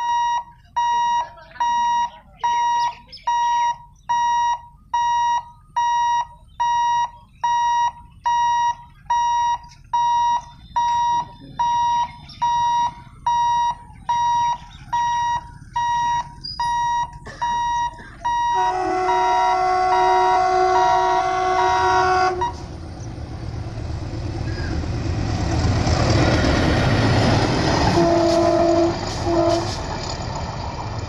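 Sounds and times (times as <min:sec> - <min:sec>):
level crossing alarm beeping: 0:00.0 - 0:22.6
locomotive horn: 0:18.3 - 0:22.8, 0:27.8 - 0:29.9.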